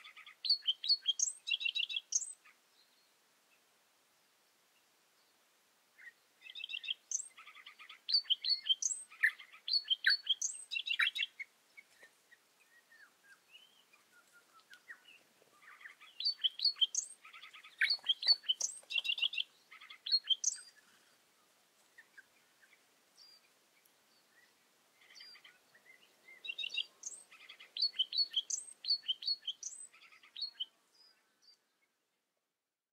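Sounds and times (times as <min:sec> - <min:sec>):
bird chirping and trilling: 0:00.0 - 0:02.4, 0:06.5 - 0:11.4, 0:13.0 - 0:20.7, 0:25.0 - 0:30.7.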